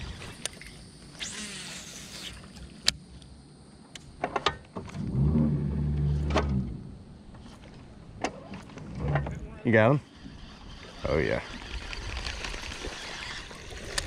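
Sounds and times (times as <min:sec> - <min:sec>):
fishing reel whirring: 0:00.0 - 0:02.9, 0:09.7 - 0:14.0
fishing line hissing out: 0:00.0 - 0:03.0, 0:09.8 - 0:14.0
reel clicks: 0:10.1 - 0:14.0.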